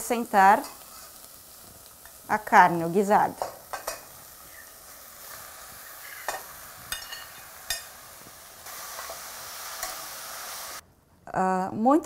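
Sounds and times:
meat sizzling in oil: 0.0 - 10.8
metal spoon scraping a pan: 3.4 - 8.1, 8.9 - 10.2.

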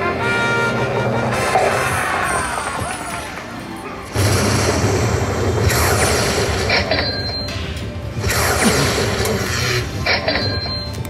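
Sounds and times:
slot machine electric crackling: 4.1 - 7.5, 8.1 - 10.6.

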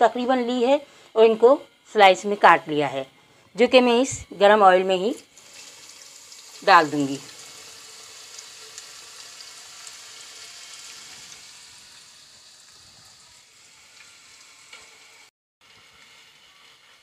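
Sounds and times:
onions sizzling in oil: 5.3 - 17.0.

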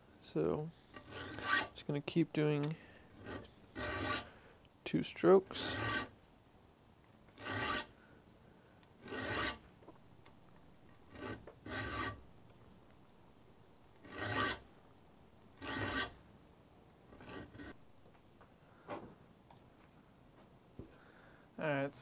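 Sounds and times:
file rasping on saw teeth: 0.9 - 1.8, 3.1 - 4.3, 5.5 - 6.1, 7.4 - 7.9, 9.0 - 9.6, 11.1 - 12.2, 14.0 - 14.6, 15.6 - 16.2, 17.2 - 17.8.

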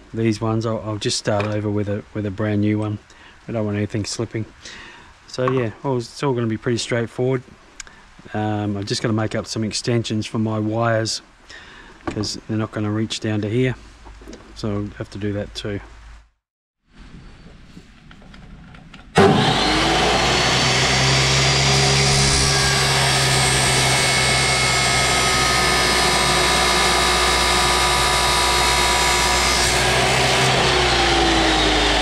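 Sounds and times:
cut-off saw cutting metal: 19.2 - 32.0.

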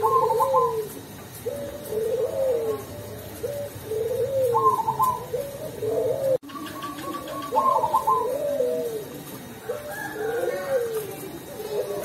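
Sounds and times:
dove cooing: 0.0 - 12.0.

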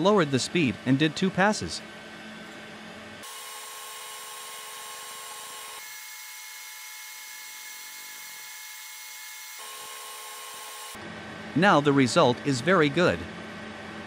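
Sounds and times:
laser engraver whine and hiss: 3.2 - 11.0.

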